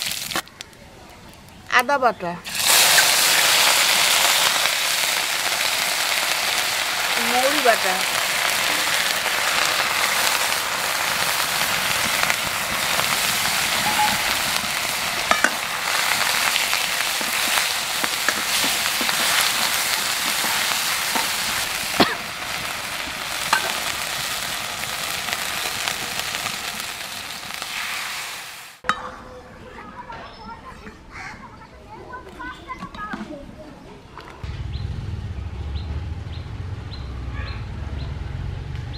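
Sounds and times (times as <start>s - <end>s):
paste sizzling in oil: 2.4s - 28.8s
steel ladle clinking against pan: 23.5s - 23.8s.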